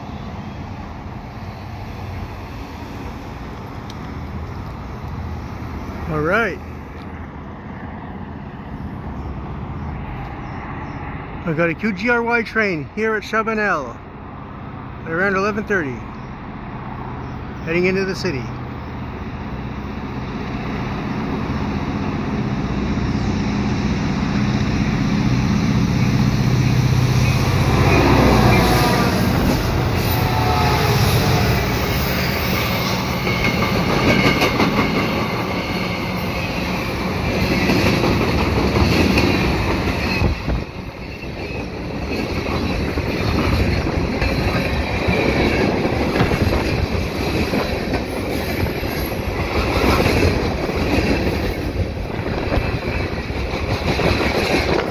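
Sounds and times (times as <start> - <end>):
diesel locomotive engines droning: 0.0 - 54.9
freight cars rumbling: 0.0 - 54.9
clacking train wheels: 24.3 - 54.9.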